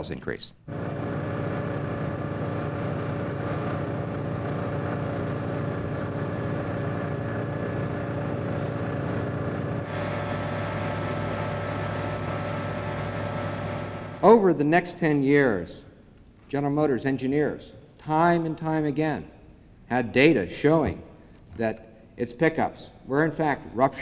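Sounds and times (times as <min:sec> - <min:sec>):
engine droning: 0:00.7 - 0:14.2.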